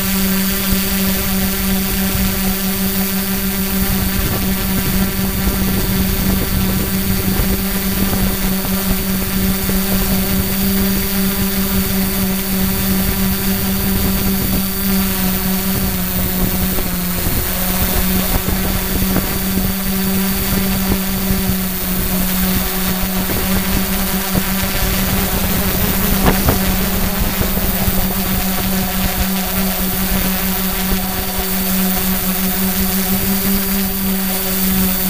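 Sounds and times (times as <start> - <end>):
drone propellers whirring: 0.0 - 35.0
wind buffeting microphone: 0.6 - 33.6.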